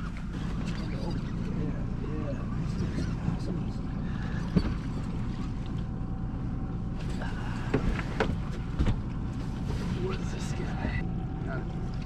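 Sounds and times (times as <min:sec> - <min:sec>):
water and wind around boat: 0:00.0 - 0:12.0
gear knocking against boat: 0:02.5 - 0:05.9, 0:07.1 - 0:09.6.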